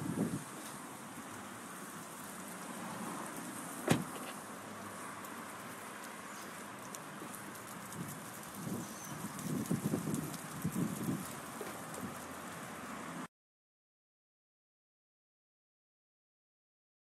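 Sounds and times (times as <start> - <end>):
car door shutting: 3.8 - 4.4.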